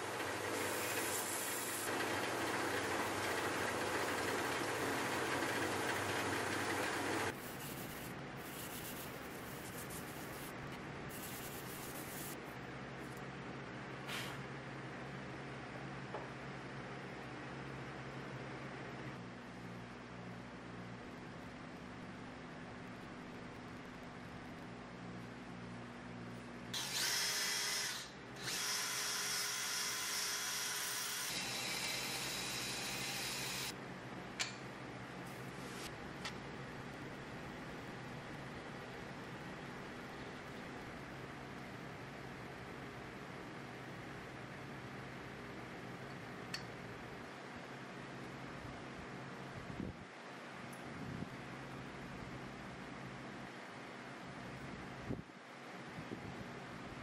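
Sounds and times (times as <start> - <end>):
belt sander running: 0.0 - 7.4.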